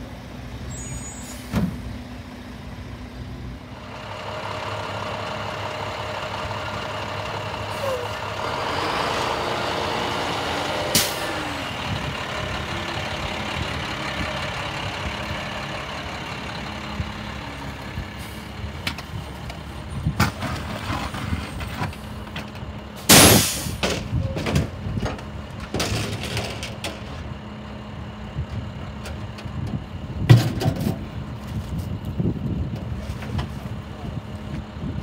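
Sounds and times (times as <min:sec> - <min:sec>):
garbage truck idling: 0:00.0 - 0:35.0
air brake hiss: 0:00.7 - 0:01.6, 0:23.1 - 0:23.8
sharp bang: 0:23.1 - 0:23.8.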